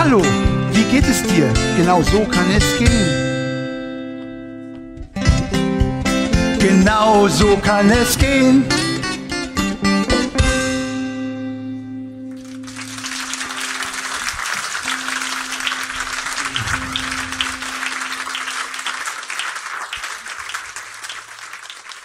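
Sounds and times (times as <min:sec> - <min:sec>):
audience applause: 0:12.4 - 0:22.0
acoustic guitar chord ringing: 0:14.9 - 0:18.9.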